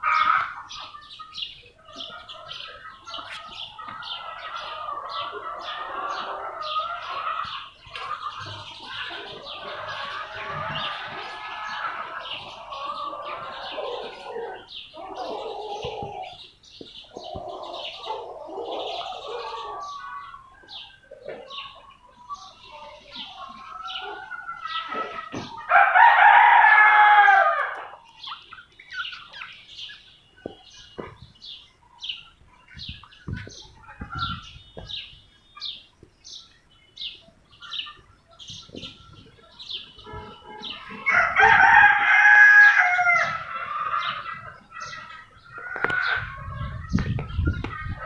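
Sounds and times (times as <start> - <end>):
small birds chirping: 0.0 - 48.0
rooster crowing: 25.7 - 28.0, 40.6 - 44.1.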